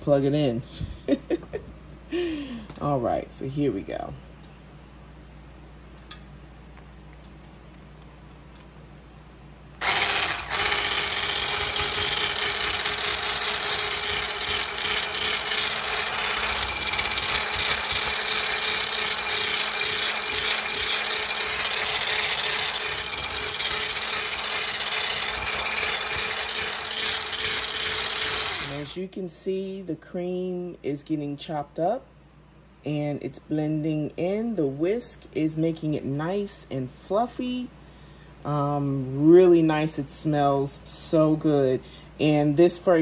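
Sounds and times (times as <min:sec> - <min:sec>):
electric stick blender whipping: 0:09.8 - 0:29.1.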